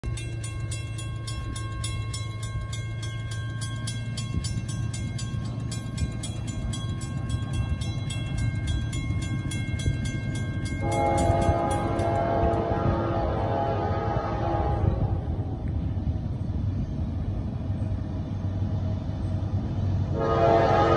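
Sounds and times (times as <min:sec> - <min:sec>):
crossing warning bell ringing: 0:00.0 - 0:20.9
locomotive air horn: 0:10.8 - 0:15.4, 0:20.1 - 0:20.9.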